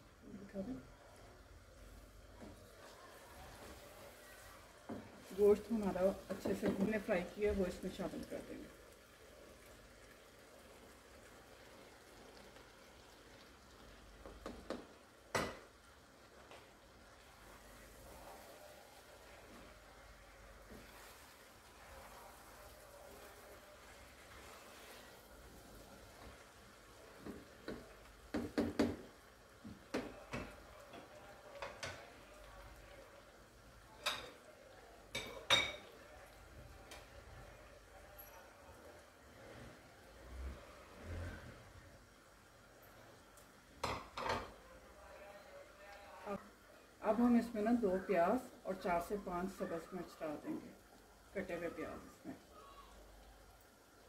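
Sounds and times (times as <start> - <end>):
wooden spatula scraping and stirring: 1.9 - 7.3, 16.4 - 32.1
utensil knocking on cookware: 27.2 - 29.1.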